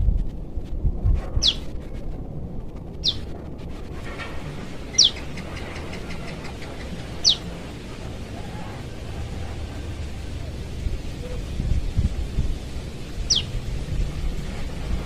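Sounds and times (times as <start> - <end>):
bird chirping: 1.4 - 1.7, 3.0 - 3.3, 4.8 - 7.7, 13.2 - 13.6.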